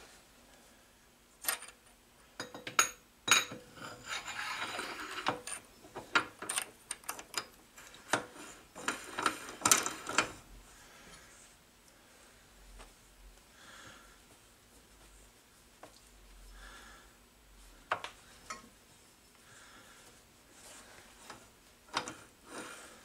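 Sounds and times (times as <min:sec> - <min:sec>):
metal scraping: 0:03.8 - 0:05.6.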